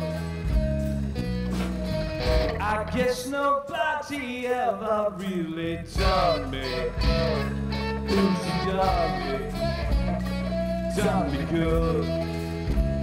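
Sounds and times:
bass and drums: 0.0s - 3.4s, 5.7s - 13.0s
electric guitar: 0.0s - 3.7s, 5.9s - 13.0s
harmonica: 6.0s - 13.0s.

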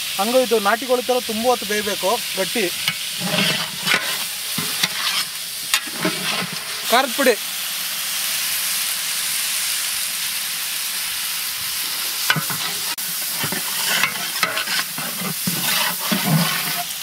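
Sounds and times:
meat sizzling in oil: 0.0s - 17.0s
ladle scraping metal pot: 2.8s - 6.9s, 12.3s - 17.0s.

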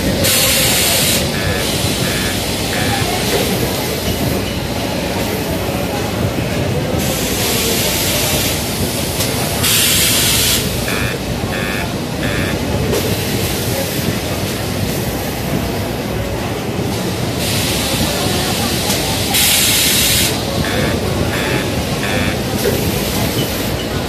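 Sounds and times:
steady machinery noise: 0.0s - 24.0s
press machine hissing: 0.1s - 4.6s, 7.1s - 13.6s, 17.4s - 24.0s
short beeps: 0.6s - 3.6s, 10.1s - 12.8s, 19.6s - 22.8s.

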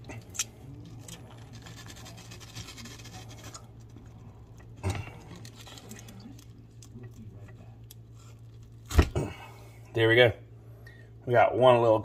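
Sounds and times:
steady low hum: 0.0s - 12.0s
fish skin scraping and tearing: 0.4s - 3.8s.

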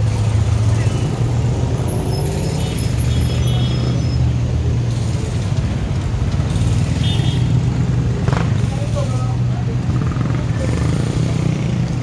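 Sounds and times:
vehicle engines humming: 0.0s - 12.0s.

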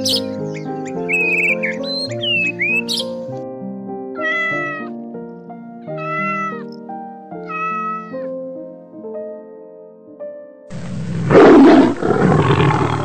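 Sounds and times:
soft background music: 0.0s - 10.7s
cat meowing: 4.2s - 5.0s, 5.9s - 6.7s, 7.4s - 8.4s.

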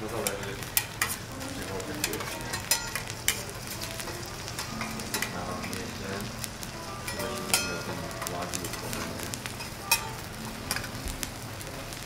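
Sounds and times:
steak sizzling on a griddle: 0.0s - 12.0s.

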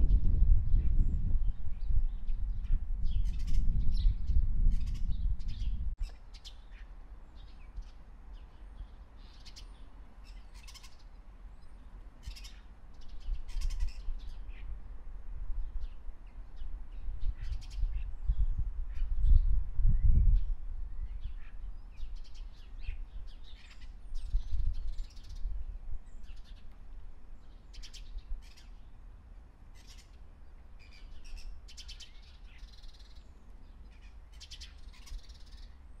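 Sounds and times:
birds chirping: 1.9s - 14.7s, 29.7s - 36.0s.

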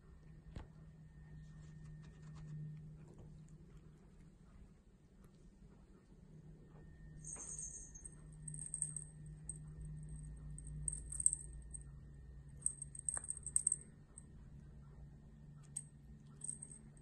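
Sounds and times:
small bell jingling: 7.2s - 12.0s, 12.6s - 13.9s, 15.7s - 17.0s.

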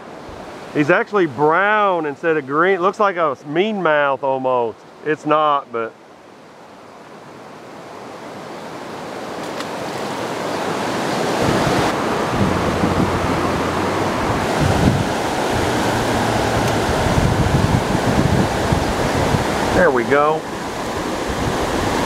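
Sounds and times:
river rapids rushing: 5.0s - 22.0s
wind buffeting microphone: 11.2s - 22.0s.

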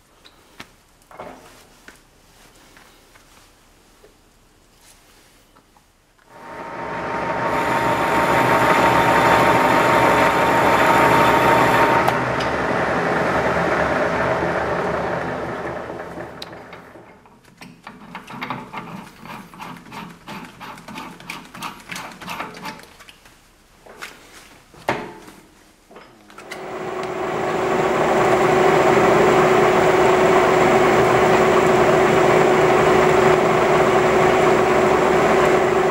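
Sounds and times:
metal lathe motor running: 6.4s - 17.0s, 26.5s - 35.9s.

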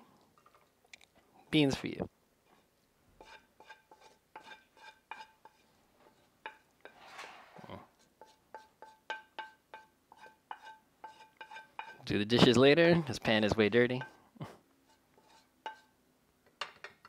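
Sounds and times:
wooden spoon scraping skillet: 2.4s - 12.1s, 14.8s - 16.0s.

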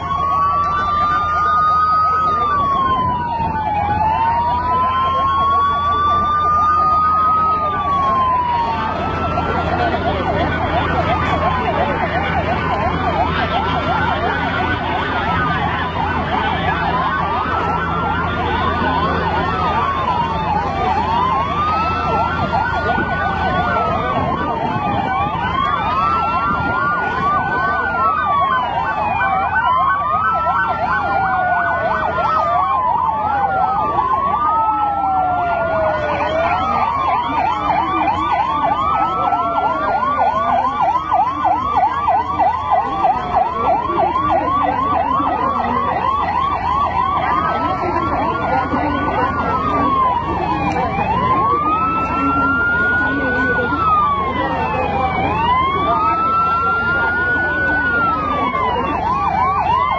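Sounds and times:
fast yelping siren: 0.0s - 59.9s
wailing siren: 0.0s - 59.9s.

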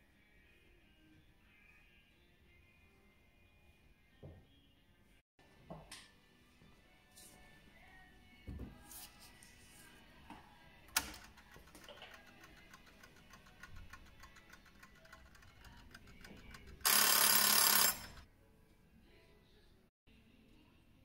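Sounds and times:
timer alarm ringing: 16.8s - 18.2s.

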